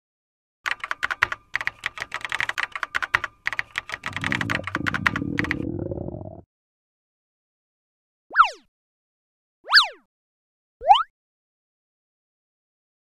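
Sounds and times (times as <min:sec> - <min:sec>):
typing on mechanical keyboard: 0:00.7 - 0:05.9
stomach growling: 0:04.1 - 0:06.4.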